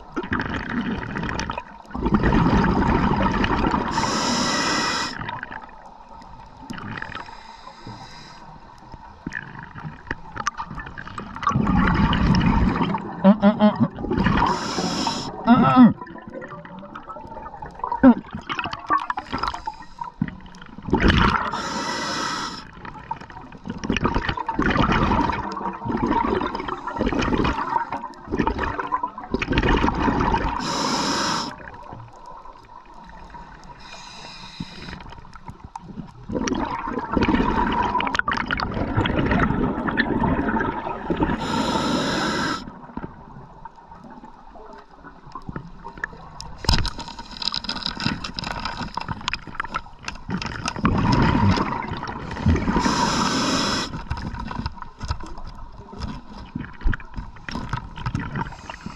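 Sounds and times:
bubbling exhalations: 0.2s - 5.5s, 11.3s - 20.1s, 20.8s - 22.7s, 23.8s - 31.7s, 36.2s - 42.8s, 50.3s - 54.3s
scuba regulator inhalation hiss: 3.8s - 5.2s, 7.2s - 8.7s, 14.4s - 15.5s, 19.2s - 20.2s, 21.4s - 22.8s, 30.6s - 31.7s, 33.8s - 35.2s, 41.3s - 42.7s, 52.3s - 54.1s, 58.5s - 58.9s.

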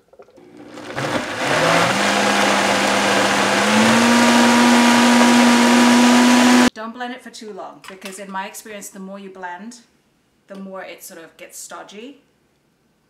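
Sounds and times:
blender motor running: 0.4s - 6.7s.

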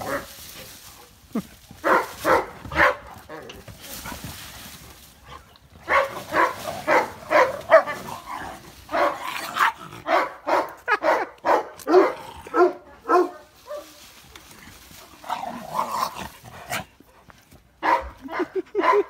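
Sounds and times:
dogs barking: 1.8s - 3.3s, 5.8s - 13.9s, 17.8s - 19.0s.

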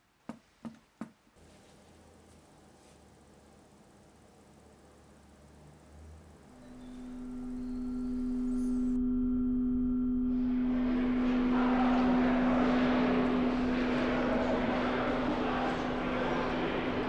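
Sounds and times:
low drone tone: 5.9s - 17.0s.

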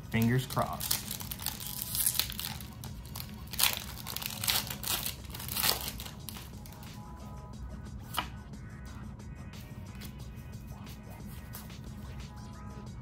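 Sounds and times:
wrapper crinkling and tearing: 0.2s - 6.8s.

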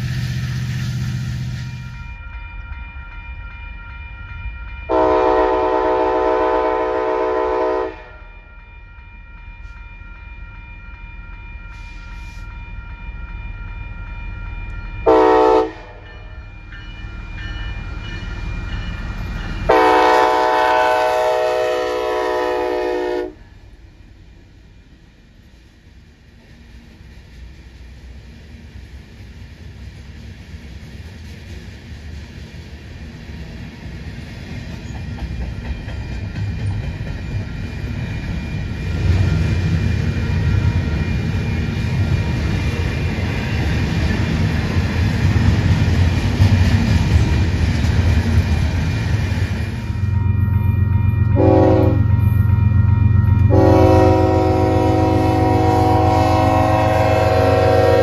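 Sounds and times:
locomotive air horn: 4.9s - 8.2s, 15.1s - 16.0s, 19.7s - 23.6s, 51.3s - 52.3s, 53.4s - 58.0s
freight train wheels clattering: 26.3s - 50.0s.

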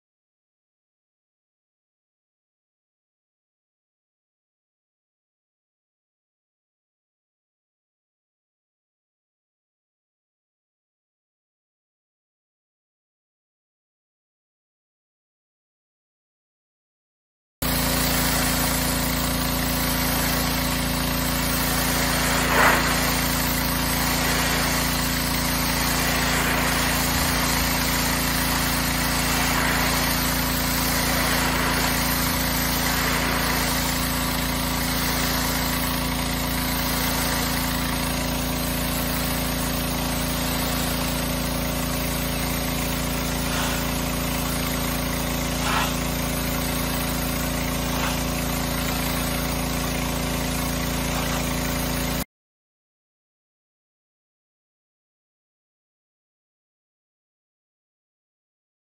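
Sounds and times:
high-pressure spray hissing: 17.6s - 52.2s
pressure washer engine running: 17.6s - 52.2s.

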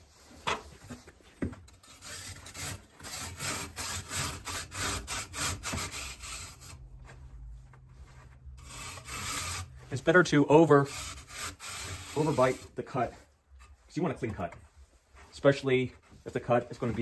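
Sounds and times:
handsaw rasping through brick: 1.8s - 6.8s, 8.6s - 13.0s.

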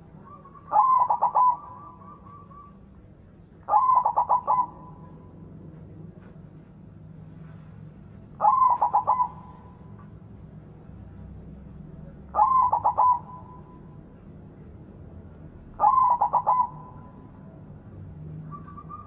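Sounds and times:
dove cooing: 0.0s - 2.9s, 3.7s - 5.4s, 8.3s - 10.0s, 12.0s - 14.0s, 15.6s - 17.4s.

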